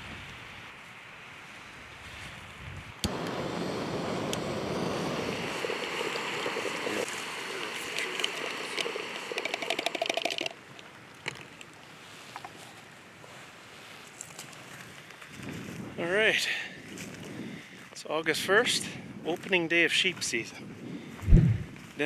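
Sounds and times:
steady rushing noise: 3.1s - 9.4s, 21.2s - 22.0s
spoon stirring in plastic mug: 7.6s - 10.5s
small clicks: 7.9s - 11.7s.

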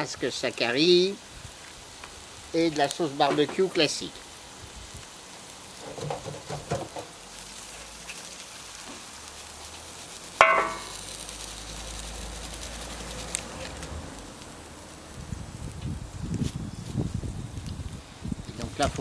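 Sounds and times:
food sizzling on a griddle: 0.0s - 19.0s
bowl knocking on steel edge: 10.4s - 10.9s.

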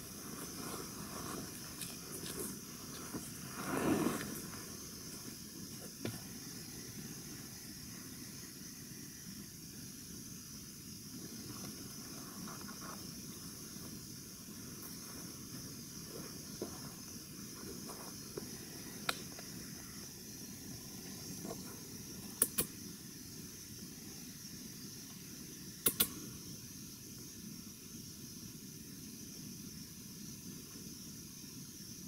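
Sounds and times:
steady high hiss: 0.0s - 32.0s
sharp snaps: 22.3s - 22.8s, 25.8s - 26.2s.

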